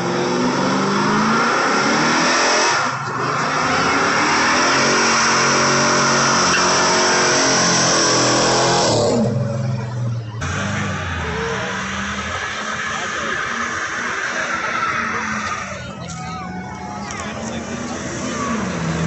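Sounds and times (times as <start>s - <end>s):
car engine at high revs: 0.0s - 19.0s
tires squealing: 0.0s - 19.0s.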